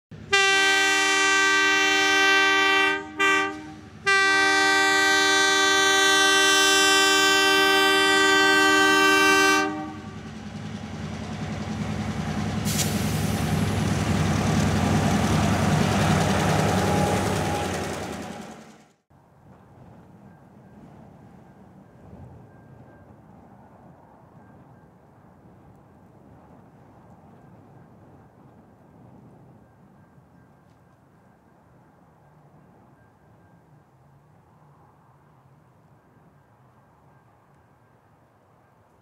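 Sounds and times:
train passing: 0.1 - 39.0
locomotive air horn: 0.2 - 10.3, 14.8 - 18.6.

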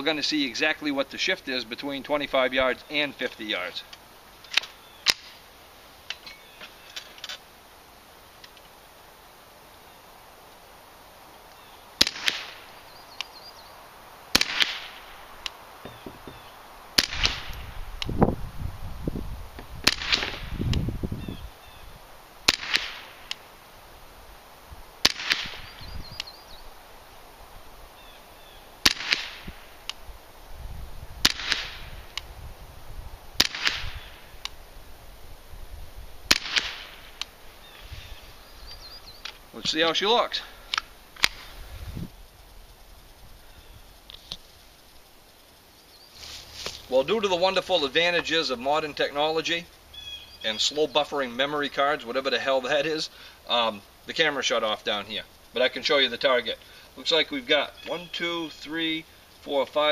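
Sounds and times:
suppressed rifle shots: 12.0 - 12.7, 14.3 - 15.1, 17.0 - 17.7, 19.8 - 20.6, 22.4 - 23.4, 25.0 - 25.8, 28.8 - 29.6, 31.2 - 32.0, 33.4 - 34.1, 36.3 - 37.3.

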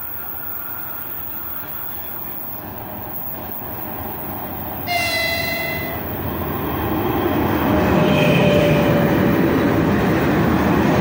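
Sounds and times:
freight train rumble: 0.0 - 11.0
locomotive horn chord: 4.9 - 6.1.

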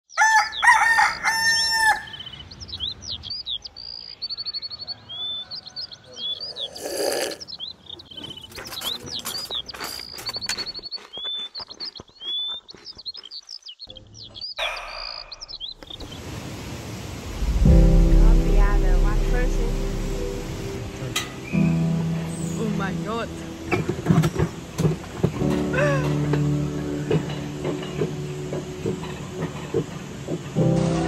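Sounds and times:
rooster crowing: 0.1 - 2.2, 4.7 - 6.5
songbirds chirping and trilling: 0.1 - 16.7, 19.2 - 31.0
rush of noise: 16.2 - 21.1.

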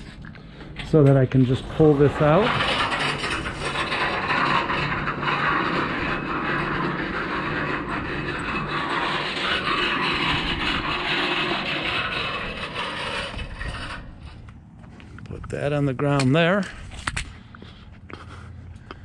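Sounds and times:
hose scraping across concrete: 0.0 - 14.5.

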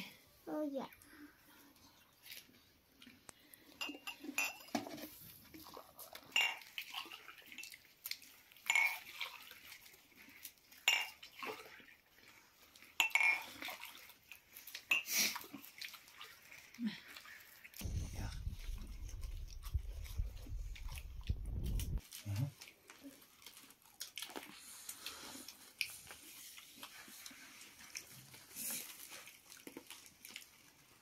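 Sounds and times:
glass cups and dishes clinking: 3.7 - 5.1, 6.3 - 6.7, 8.7 - 9.0, 10.9 - 11.2, 13.0 - 13.5.

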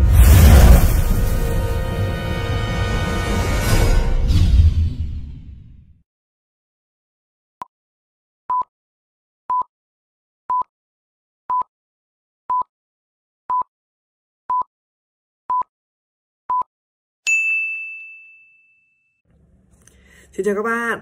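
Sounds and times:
loud bell-like ding: 17.3 - 19.2.

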